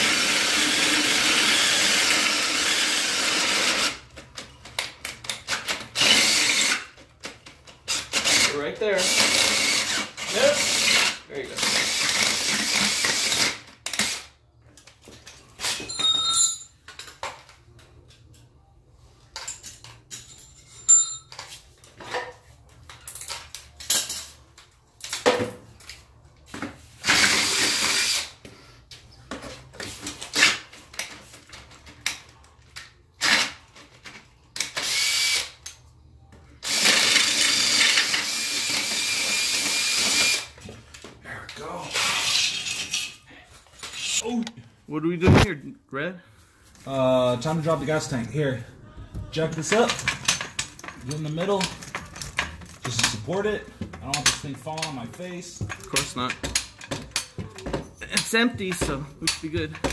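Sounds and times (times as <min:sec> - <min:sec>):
cordless drill boring metal: 0:00.0 - 0:04.0, 0:06.0 - 0:06.9, 0:07.9 - 0:14.2, 0:27.0 - 0:28.3, 0:34.8 - 0:35.5, 0:36.6 - 0:40.5
handling clicks and knocks: 0:49.5 - 0:59.9.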